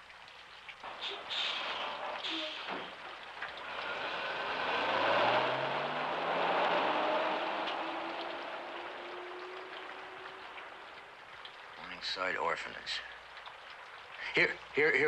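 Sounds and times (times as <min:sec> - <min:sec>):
heavy rain: 0:00.8 - 0:15.0
bus engine pulling away: 0:00.9 - 0:03.0, 0:03.6 - 0:10.9.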